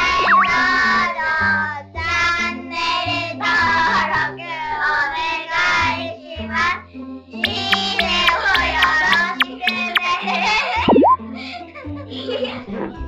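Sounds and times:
cartoon boing effect: 0.0s - 0.8s, 7.4s - 10.1s, 10.8s - 11.2s.

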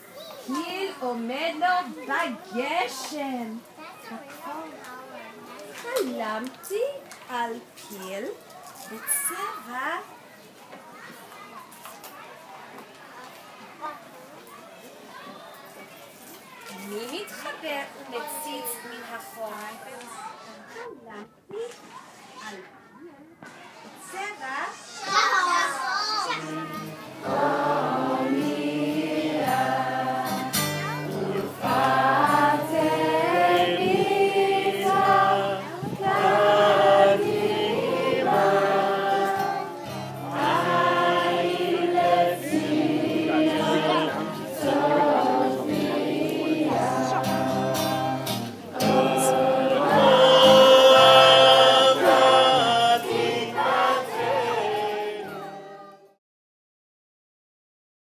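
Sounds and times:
group of voices singing: 26.3s - 56.2s.

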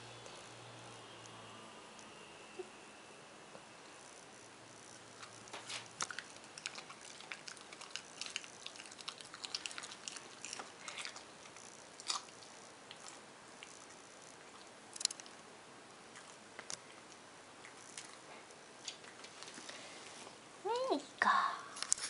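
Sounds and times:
dog crunching on gristle: 5.2s - 15.4s.

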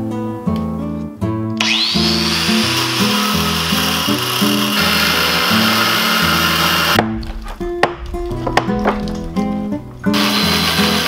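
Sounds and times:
background music: 0.0s - 11.0s
angle grinder cutting metal: 1.6s - 7.0s, 10.1s - 11.0s.

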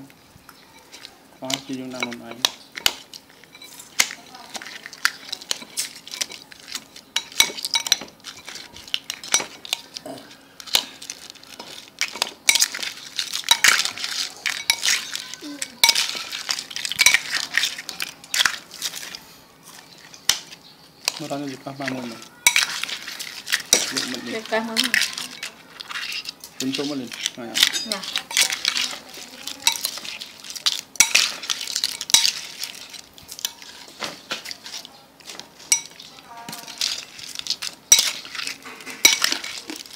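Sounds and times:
spoon clinking and scraping bowl: 0.5s - 39.9s.

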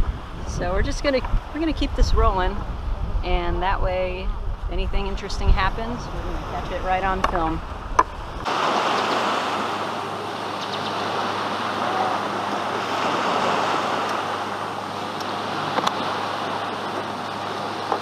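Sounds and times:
surf washing on beach: 5.0s - 18.0s.

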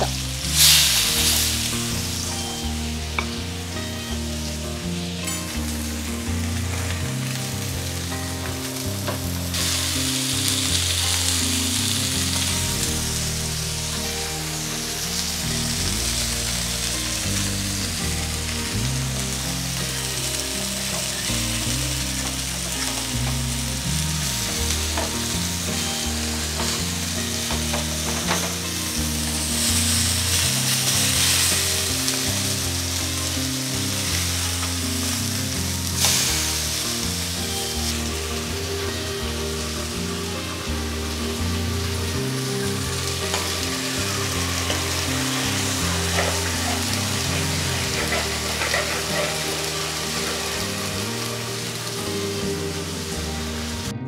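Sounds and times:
fish sizzling in hot oil: 0.0s - 54.0s
spatula moving against pan: 43.3s - 50.7s.

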